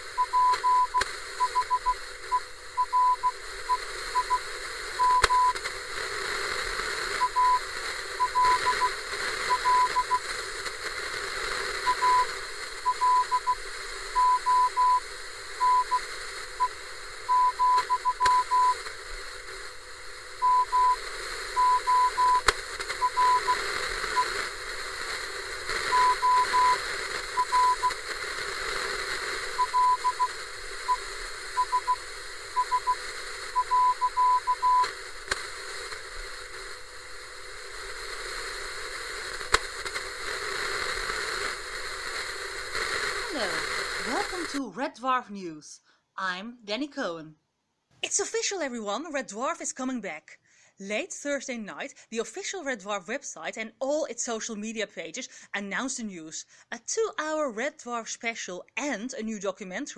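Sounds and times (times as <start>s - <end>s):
radio static: 0.0s - 44.8s
morse code beeps: 0.2s - 5.6s, 7.2s - 10.2s, 11.8s - 13.6s, 14.2s - 15.0s, 15.6s - 16.0s, 16.6s - 18.8s, 20.4s - 21.0s, 21.6s - 24.3s, 25.9s - 28.0s, 29.6s - 34.9s.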